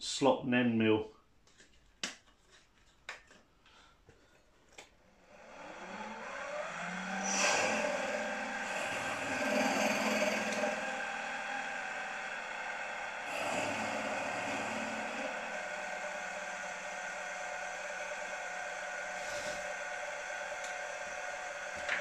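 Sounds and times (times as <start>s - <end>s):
drill press motor whirring: 5.2s - 22.0s.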